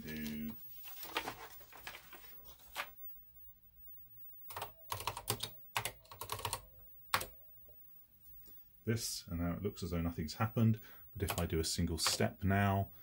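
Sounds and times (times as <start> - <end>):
computer keyboard keystrokes: 4.5 - 7.3, 11.2 - 12.2.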